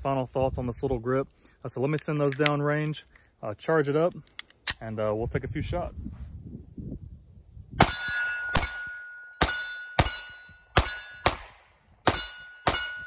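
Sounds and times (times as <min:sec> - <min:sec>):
steel target plate ringing: 0:07.8 - 0:11.4, 0:12.1 - 0:13.0
pistol shots: 0:07.8 - 0:13.0.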